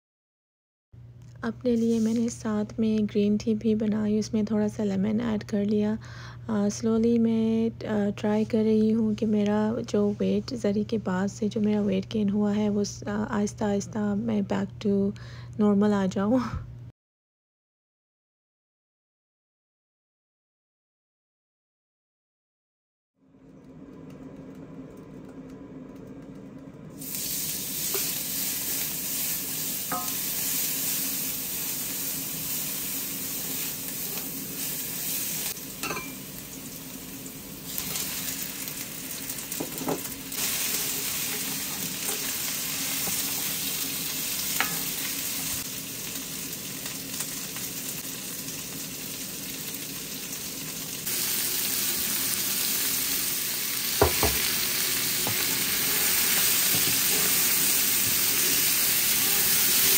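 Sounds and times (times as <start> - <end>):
food sizzling in a pan: 27.0 - 59.9.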